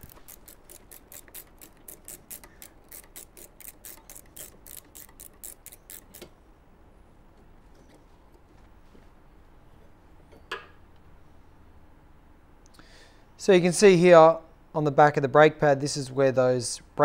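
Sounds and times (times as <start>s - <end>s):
ratchet clicking: 0.0s - 6.4s.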